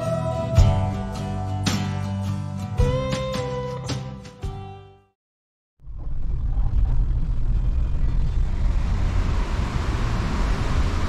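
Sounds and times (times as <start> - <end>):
car road rumble from inside: 5.8 - 11.0.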